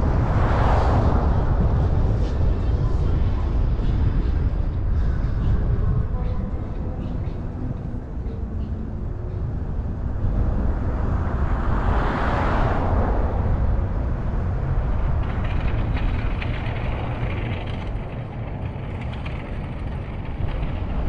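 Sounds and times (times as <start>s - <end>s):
passing vehicle rush: 0.0s - 2.5s, 9.8s - 21.0s
car tyres and engine rumble: 0.0s - 21.0s.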